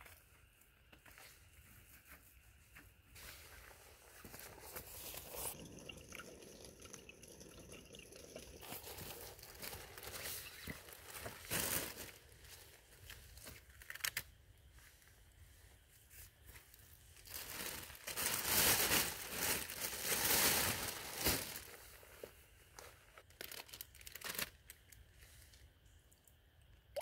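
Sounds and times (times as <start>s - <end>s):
plastic bags crinkling: 8.6s - 14.2s, 17.2s - 25.0s.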